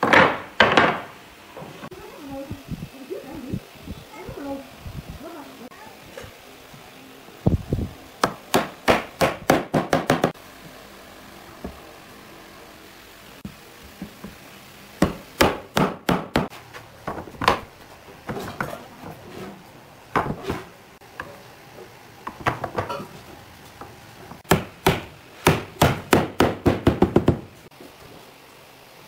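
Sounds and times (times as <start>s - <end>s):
sharp wooden knocks: 0.0s - 1.1s, 8.2s - 10.4s, 24.4s - 27.5s.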